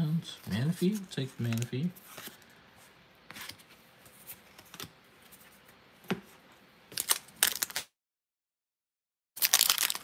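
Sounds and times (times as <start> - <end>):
foil pack crinkling: 7.0 - 7.9, 9.4 - 10.0.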